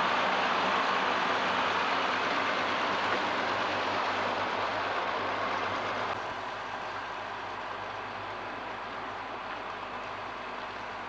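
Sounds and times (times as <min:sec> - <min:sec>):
diesel engine idling: 0:00.0 - 0:11.0.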